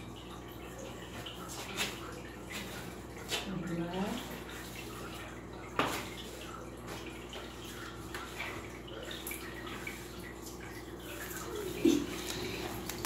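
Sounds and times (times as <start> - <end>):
rustles and taps on tiled floor: 5.7 - 6.1.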